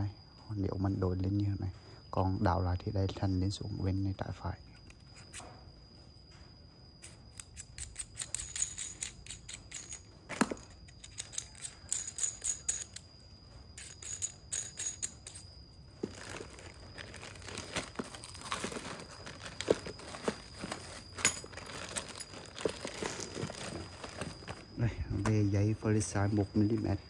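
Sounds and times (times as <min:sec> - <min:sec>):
plastic bag crinkling: 0:16.0 - 0:24.8.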